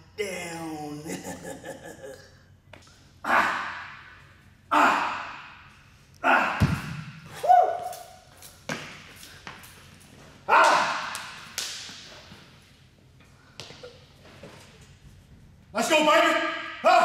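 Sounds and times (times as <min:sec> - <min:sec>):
man grunting: 0:03.2 - 0:03.8, 0:04.7 - 0:05.4, 0:06.2 - 0:06.6.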